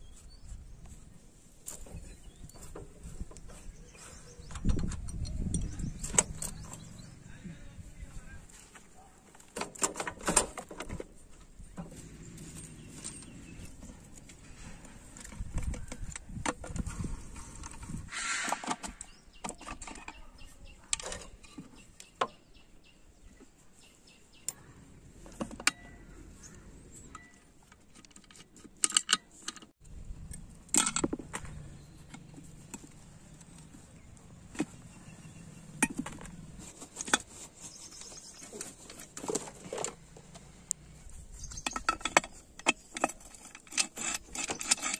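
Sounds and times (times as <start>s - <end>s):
metal engine parts clinking: 1.7s - 7.1s, 9.5s - 18.8s, 25.2s - 40.4s, 41.0s - 44.9s.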